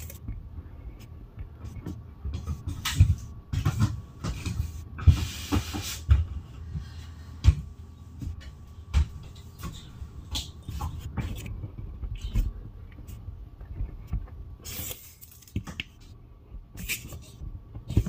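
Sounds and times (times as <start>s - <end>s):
handling knocks and thumps: 1.3s - 6.8s.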